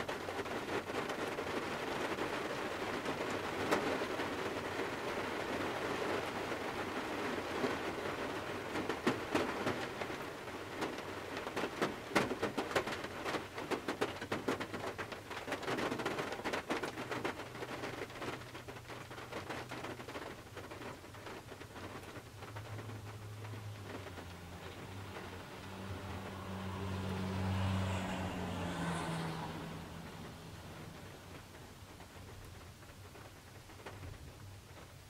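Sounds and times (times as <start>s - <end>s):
rain on car roof: 0.0s - 35.0s
passing car hum: 22.1s - 32.2s.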